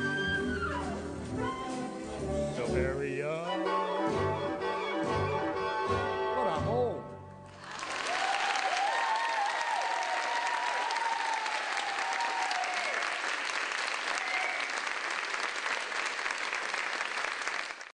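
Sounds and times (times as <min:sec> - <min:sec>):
audience applauding: 0:07.5 - 0:18.0
audience cheering: 0:07.6 - 0:17.9.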